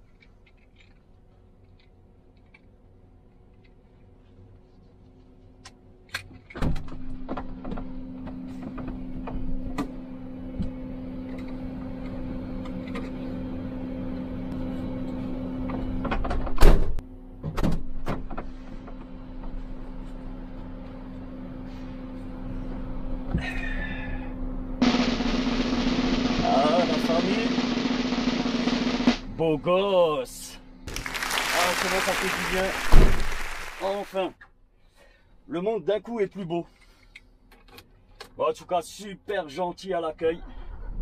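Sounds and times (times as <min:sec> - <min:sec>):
steady hum: 0:18.6 - 0:34.3
truck door thump: 0:32.8 - 0:33.3
truck door slamming: 0:32.8 - 0:33.4.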